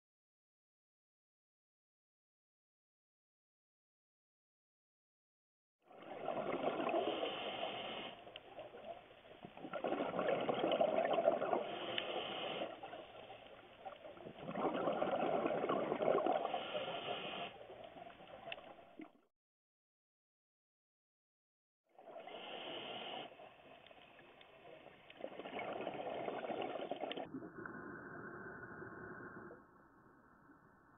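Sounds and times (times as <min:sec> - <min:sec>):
underwater exhaled bubbles gurgling: 0:05.9 - 0:19.1, 0:24.7 - 0:29.6.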